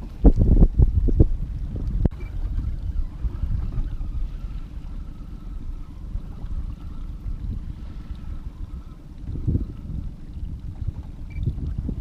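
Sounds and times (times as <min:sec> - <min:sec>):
faint lake water: 0:00.0 - 0:12.0
wind buffeting microphone: 0:00.0 - 0:12.0
faint high whine: 0:02.1 - 0:10.4.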